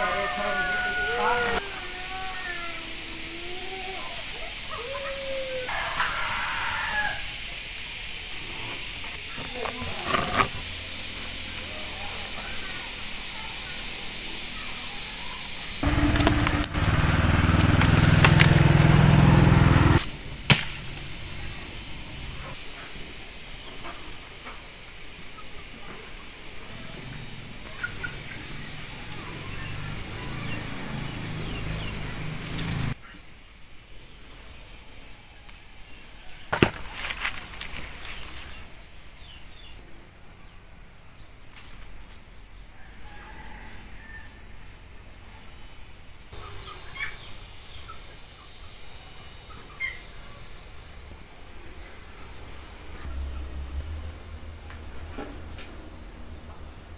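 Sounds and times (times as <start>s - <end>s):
engine humming: 15.7s - 22.6s, 26.4s - 33.0s
leaves rustling and crackling: 15.8s - 21.2s, 36.5s - 39.3s
sharp snap: 20.0s - 21.0s.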